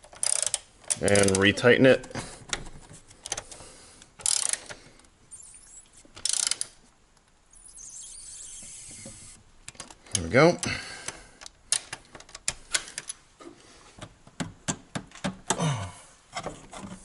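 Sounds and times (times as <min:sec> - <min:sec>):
screwdriver ratchet clicking: 0:00.1 - 0:01.4, 0:04.2 - 0:04.7, 0:06.2 - 0:06.7.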